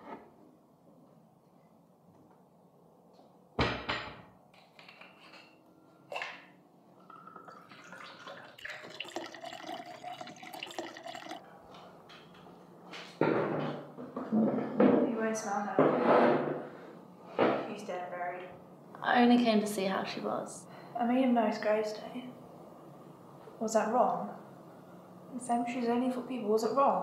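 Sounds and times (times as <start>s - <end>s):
water poured into glass: 7.0s - 11.4s.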